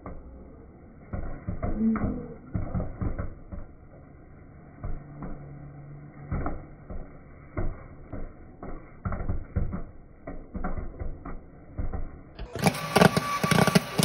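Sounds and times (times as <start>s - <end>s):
low steady hum: 0.0s - 10.5s
popcorn popping: 8.1s - 14.0s.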